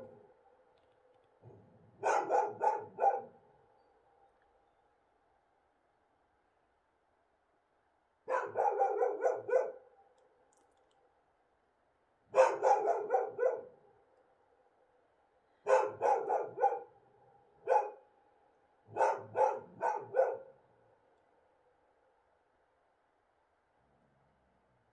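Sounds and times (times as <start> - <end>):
dogs barking: 2.0 - 3.4, 8.3 - 9.8, 12.3 - 13.8, 15.6 - 17.0, 17.6 - 18.0, 18.9 - 20.5.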